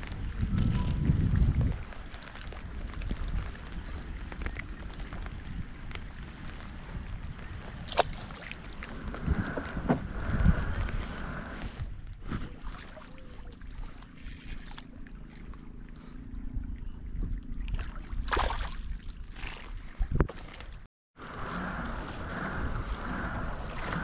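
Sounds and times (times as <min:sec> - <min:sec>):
wind buffeting microphone: 0:00.0 - 0:12.6, 0:21.2 - 0:24.0
water lapping against kayak hull: 0:00.1 - 0:24.0.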